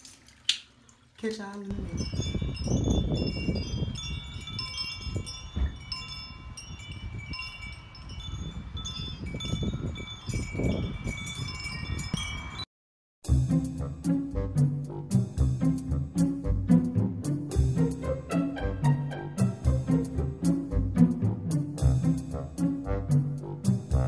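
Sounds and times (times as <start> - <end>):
metal wind chimes ringing: 1.7 - 12.7
low gusty rumble: 1.8 - 12.2.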